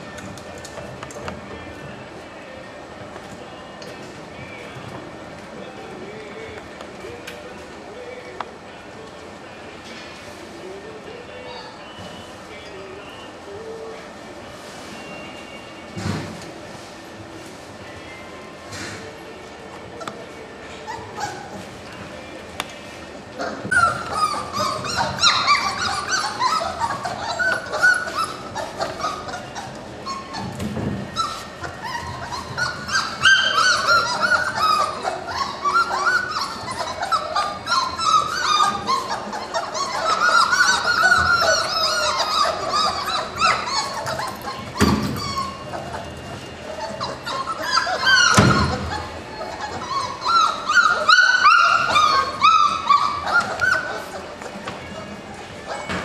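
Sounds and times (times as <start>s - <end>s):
puppies whining and yelping: 19.8s - 22.1s, 23.1s - 56.0s.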